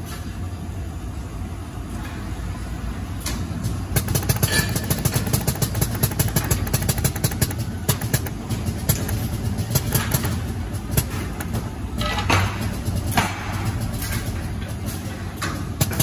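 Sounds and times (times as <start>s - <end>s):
steady low hum: 0.0s - 16.0s
dispensing machine clicking: 3.9s - 13.2s.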